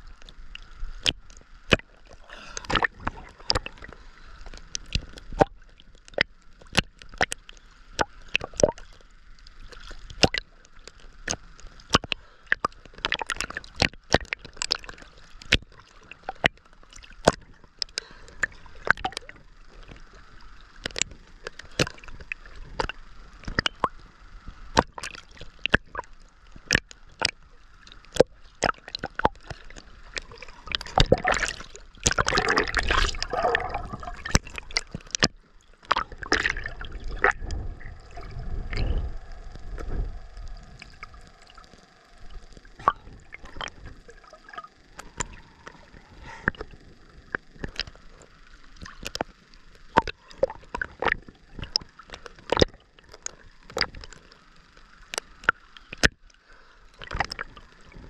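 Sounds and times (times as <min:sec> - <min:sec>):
water gurgling wash: 0:00.0 - 0:07.3, 0:24.8 - 0:54.8
muffled underwater rumble: 0:00.0 - 0:58.0
small waves lapping and splashing: 0:00.0 - 0:58.0.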